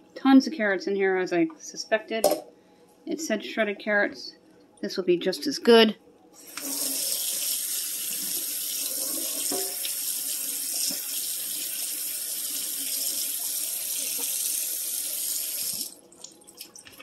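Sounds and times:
tap water running onto vegetables: 0:06.5 - 0:17.0.

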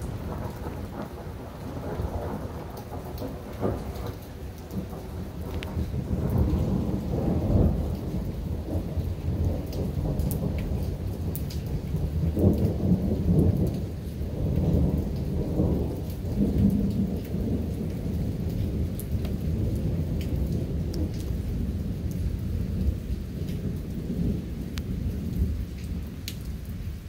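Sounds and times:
rain falling: 0:00.0 - 0:27.0
thunder rumbling: 0:00.0 - 0:27.0.

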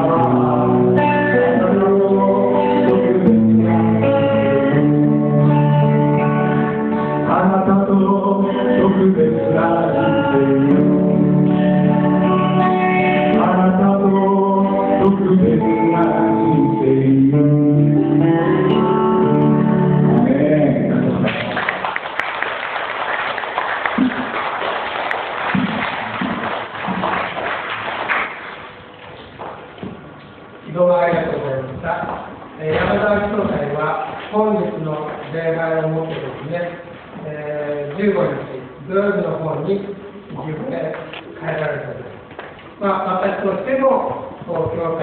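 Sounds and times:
man singing worship song: 0:00.0 - 0:04.8, 0:07.2 - 0:12.0, 0:13.1 - 0:18.8, 0:19.8 - 0:21.3
acoustic and electric guitar: 0:00.0 - 0:22.2, 0:23.8 - 0:45.0
applause: 0:21.3 - 0:28.7.

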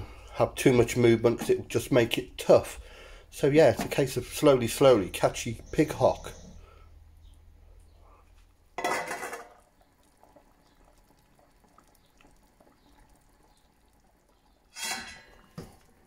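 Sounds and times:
metal lid clattering on pot: 0:08.8 - 0:09.6, 0:14.7 - 0:15.6
water simmering with bubbling: 0:09.5 - 0:16.0.

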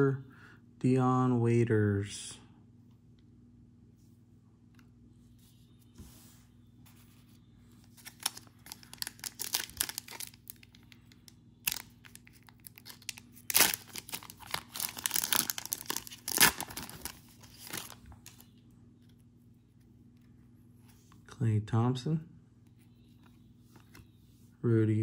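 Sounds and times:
wrapper tearing and crinkling: 0:07.9 - 0:10.9, 0:11.6 - 0:18.4.

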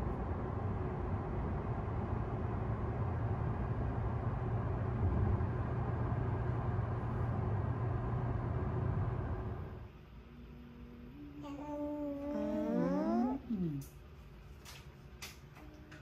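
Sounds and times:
low engine hum: 0:00.0 - 0:13.8.

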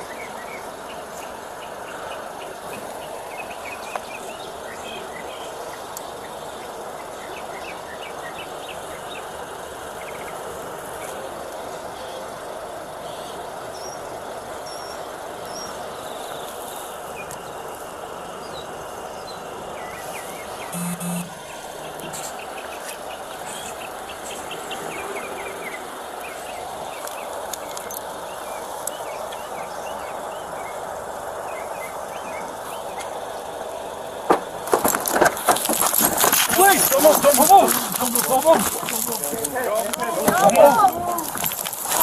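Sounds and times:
outdoor background noise: 0:00.0 - 0:42.0
faint high chirps: 0:20.0 - 0:21.6
short electronic beep: 0:20.7 - 0:21.4.

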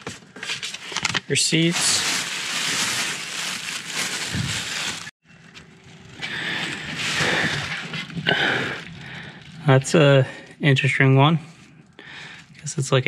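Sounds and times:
plastic bag rustling: 0:00.0 - 0:05.2, 0:05.8 - 0:10.1.

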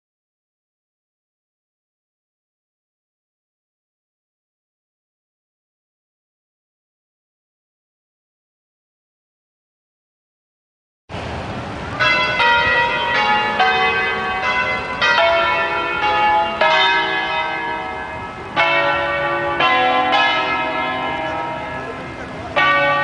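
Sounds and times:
church bells ringing: 0:11.9 - 0:23.0.

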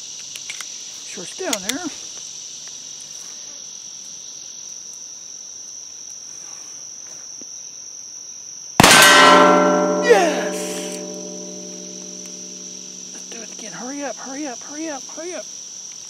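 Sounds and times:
insects buzzing: 0:00.0 - 0:16.0
loud pistol shot: 0:08.8 - 0:13.1
metal target ringing: 0:08.8 - 0:13.8.

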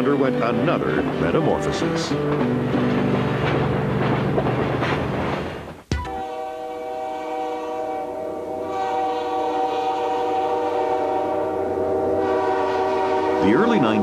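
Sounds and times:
locomotive air horn blast: 0:06.1 - 0:13.8.

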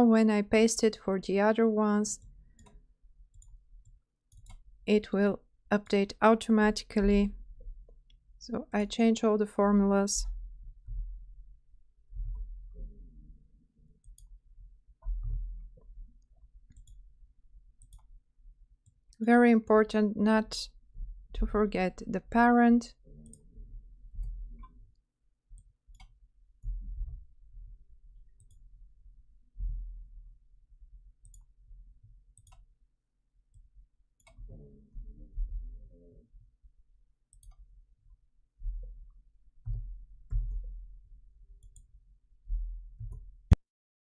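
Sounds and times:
low dull thumps: 0:15.0 - 0:16.0.

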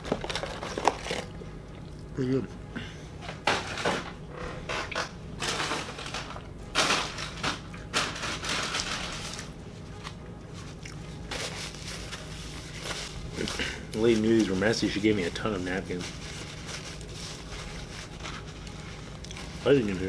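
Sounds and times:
paper napkins crinkling: 0:00.0 - 0:01.3, 0:05.4 - 0:20.0.

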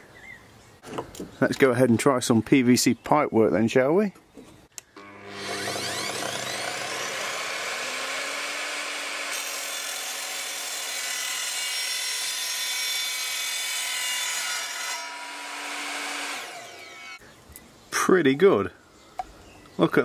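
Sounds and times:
mitre saw motor whining: 0:05.0 - 0:12.4, 0:14.4 - 0:17.2
saw blade cutting plastic pipe: 0:05.0 - 0:16.7.

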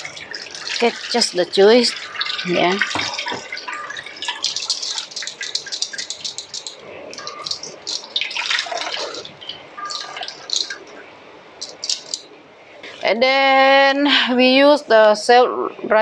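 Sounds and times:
juice dripping through metal sieve: 0:00.0 - 0:11.0, 0:11.6 - 0:12.2.

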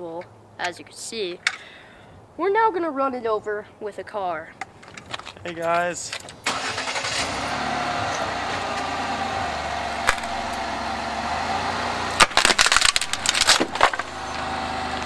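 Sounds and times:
wooden plank cracking and snapping: 0:12.2 - 0:13.7.

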